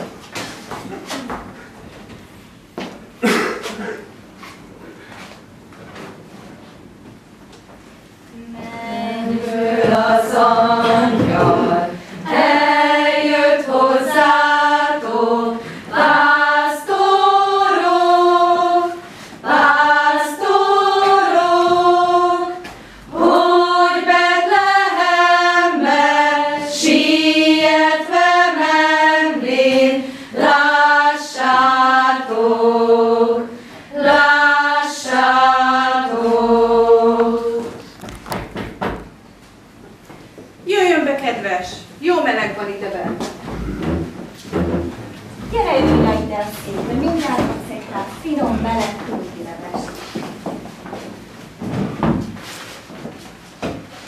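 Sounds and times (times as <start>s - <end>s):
choir singing: 8.4s - 37.8s.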